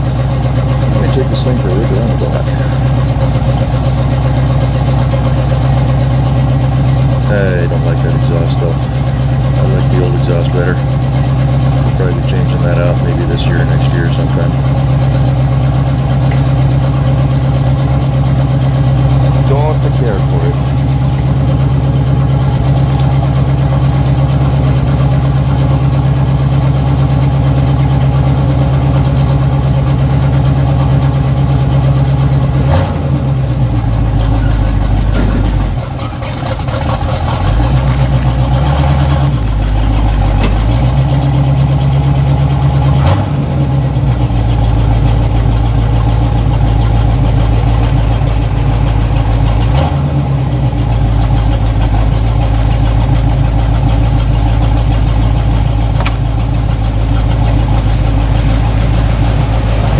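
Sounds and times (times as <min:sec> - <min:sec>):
pickup engine idling: 0:00.0 - 0:59.9
short engine knocks: 0:34.1 - 0:38.8, 0:39.7 - 0:41.2, 0:52.7 - 0:58.2.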